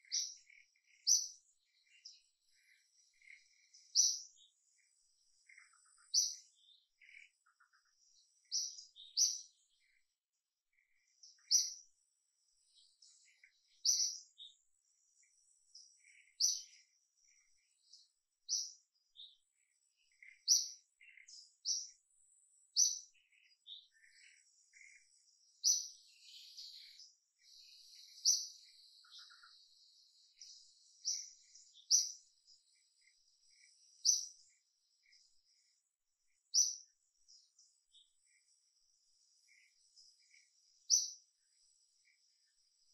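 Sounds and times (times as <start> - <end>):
small birds chirping: 0.0 - 42.9.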